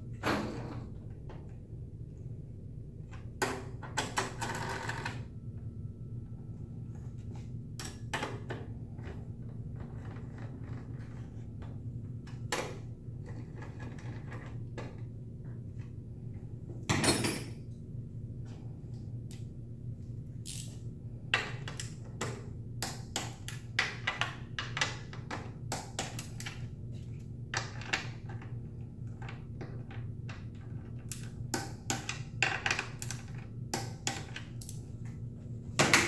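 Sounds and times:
steady low hum: 0.0s - 36.0s
tools clattering on metal chest: 16.9s - 17.6s.

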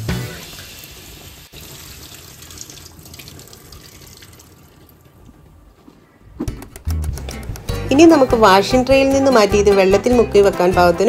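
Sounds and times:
water running from a tap: 0.0s - 5.0s.

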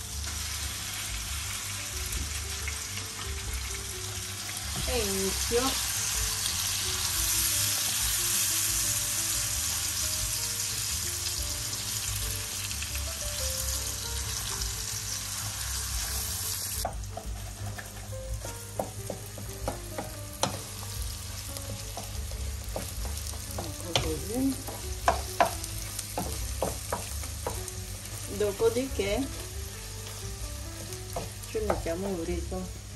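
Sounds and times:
faint background music: 0.0s - 32.9s
meat sizzling in a pan: 0.0s - 32.9s
utensil scraping a pan: 16.9s - 19.2s.

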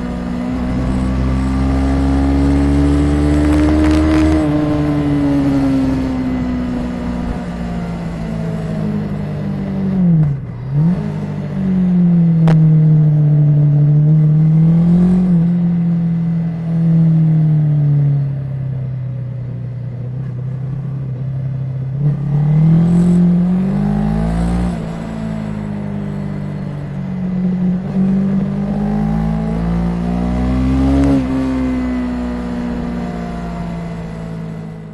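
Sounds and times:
motorcycle engine revving: 0.0s - 18.8s, 20.2s - 34.9s.

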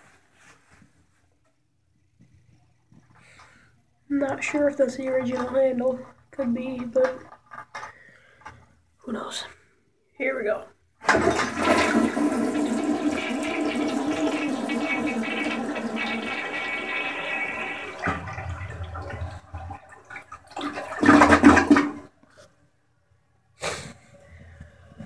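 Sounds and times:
toilet flushing: 11.0s - 22.2s.

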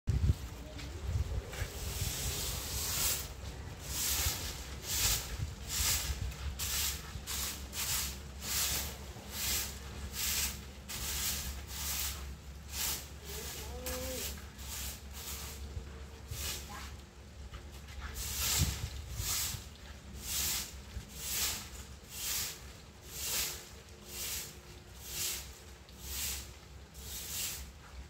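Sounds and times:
broom sweeping on tiles: 0.1s - 28.0s.

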